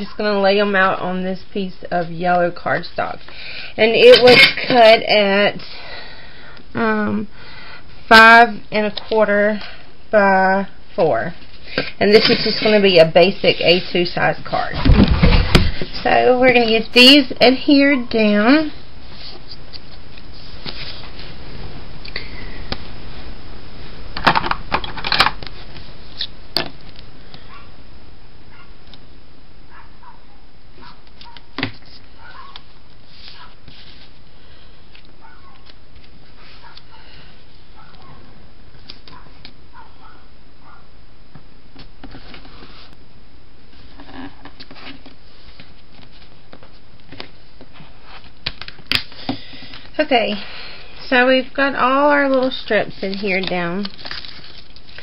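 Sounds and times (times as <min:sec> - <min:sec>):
steady background hiss: 0:00.0 - 0:55.0
paper rustling: 0:19.1 - 0:21.4, 0:30.8 - 0:36.8, 0:52.2 - 0:55.0.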